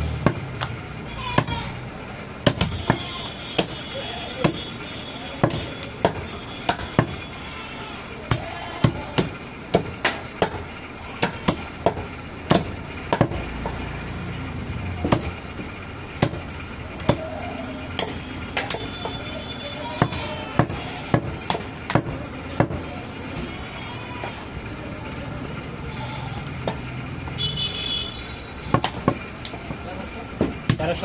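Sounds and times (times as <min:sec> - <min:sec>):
cleaver chopping meat: 0:04.4 - 0:04.7, 0:05.4 - 0:07.2, 0:11.2 - 0:13.8.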